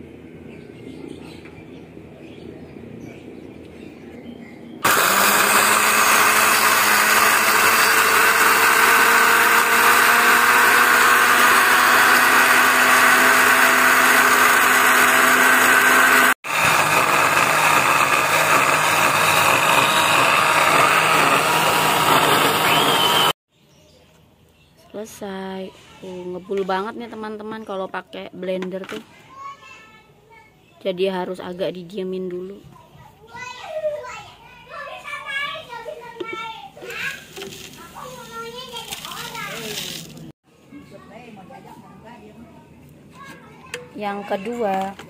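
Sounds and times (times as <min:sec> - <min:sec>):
blender grinding eggshells: 0:04.8 - 0:23.4, 0:38.6 - 0:40.3.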